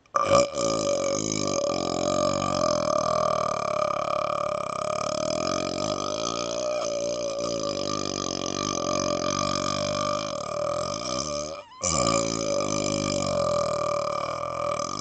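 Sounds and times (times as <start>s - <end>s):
man burping: 0.0s - 15.0s.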